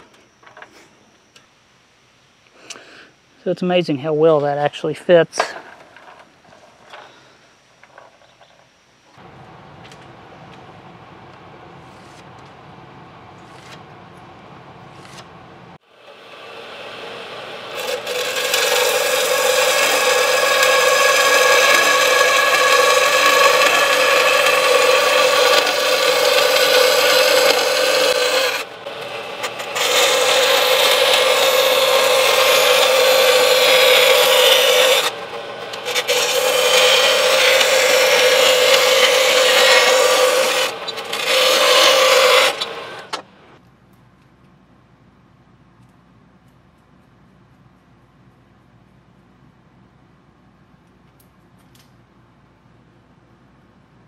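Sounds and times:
bandsaw cutting metal: 16.0s - 43.2s.

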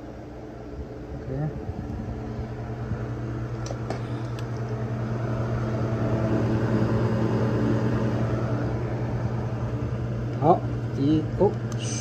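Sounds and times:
compressor hum: 0.0s - 12.0s
condenser fan whirring: 0.0s - 12.0s.

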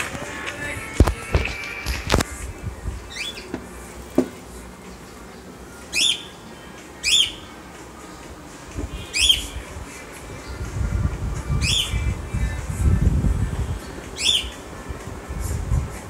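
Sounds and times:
low background noise: 0.0s - 16.0s
bird calling: 3.0s - 7.6s, 8.8s - 10.6s, 11.6s - 12.1s, 13.7s - 14.8s.

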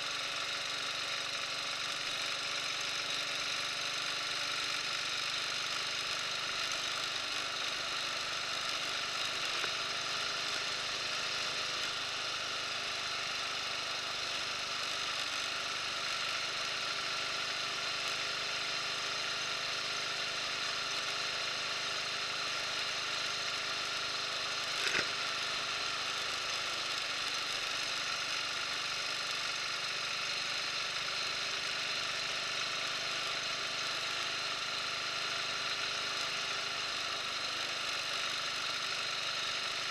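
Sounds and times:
motorcycle engine running: 0.0s - 39.9s
sharp click: 24.8s - 25.1s.

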